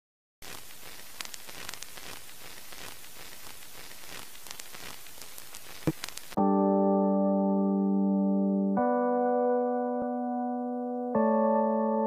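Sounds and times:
crackles and clicks: 0.4s - 6.4s
static hiss: 0.4s - 6.4s.

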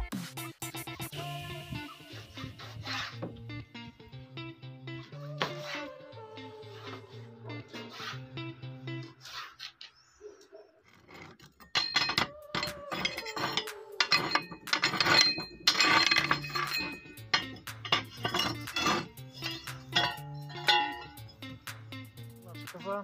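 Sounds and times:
background music: 0.0s - 9.3s, 11.7s - 23.0s
cast-iron stove rings clanking: 11.5s - 21.6s.

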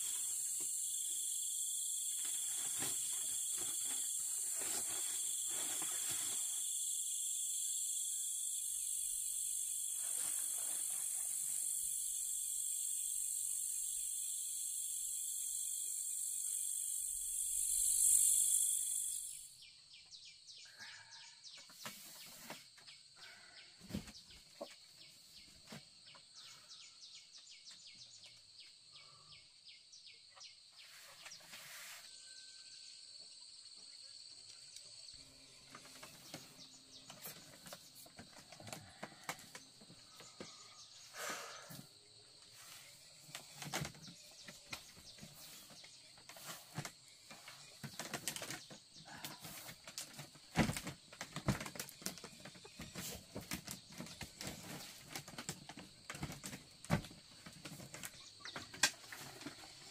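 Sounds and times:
high pulsing insect buzz: 0.0s - 19.7s, 34.1s - 58.5s
faint bird chirps: 0.0s - 55.4s
chorus of night crickets: 0.0s - 59.9s.

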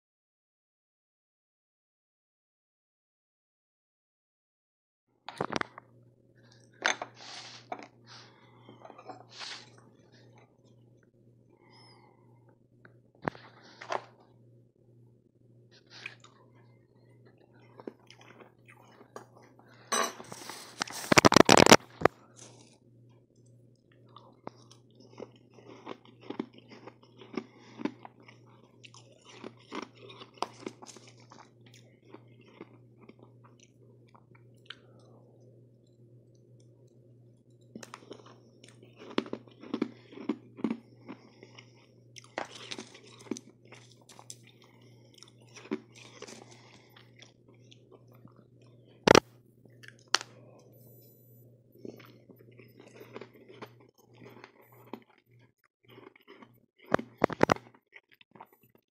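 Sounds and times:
steady low hum: 5.2s - 57.8s
crunching and chewing ice: 15.8s - 22.8s, 23.4s - 35.2s, 37.6s - 50.7s, 51.8s - 58.8s.

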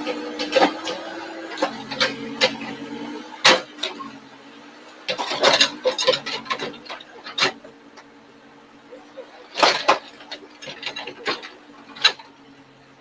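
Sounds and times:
diesel engine running: 0.0s - 13.0s
bucket and stones clattering: 5.1s - 7.7s, 9.0s - 12.4s.

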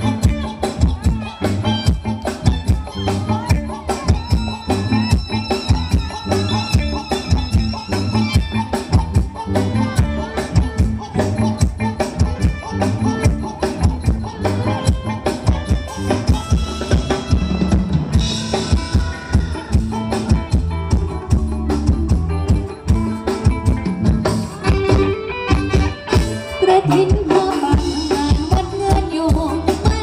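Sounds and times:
drum kit driving beat: 0.0s - 30.0s
live band playing dance song: 0.0s - 30.0s.

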